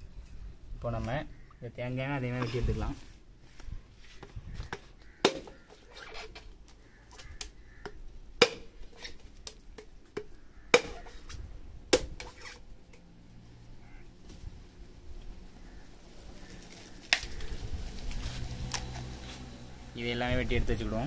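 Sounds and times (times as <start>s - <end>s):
machete chopping coconut: 5.2s - 5.6s, 7.3s - 8.8s, 9.4s - 11.1s, 11.9s - 12.5s.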